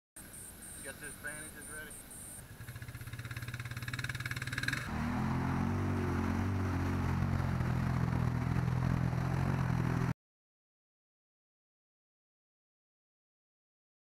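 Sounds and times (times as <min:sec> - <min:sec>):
atv engine running at low revs: 0:00.7 - 0:10.2
utv engine working through mud: 0:00.8 - 0:10.1.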